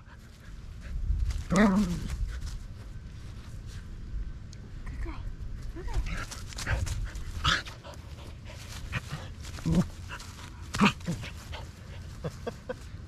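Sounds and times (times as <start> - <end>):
dogs play-fighting: 6.0 - 12.5.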